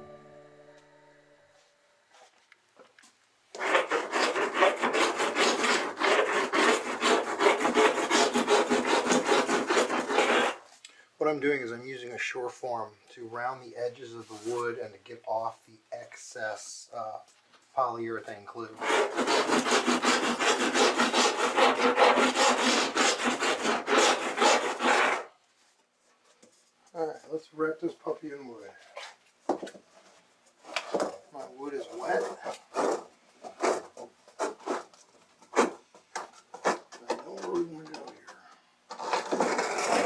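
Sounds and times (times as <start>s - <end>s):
rasp scraping wood: 3.5s - 10.7s, 18.8s - 25.3s, 30.6s - 40.0s.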